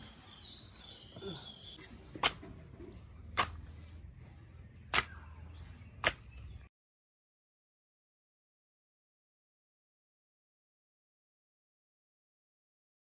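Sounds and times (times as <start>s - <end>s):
birds chirping: 0.0s - 2.1s, 2.8s - 6.7s
soft slaps of bread on leaf: 2.1s - 2.5s, 3.3s - 3.6s, 4.9s - 5.2s, 6.0s - 6.3s.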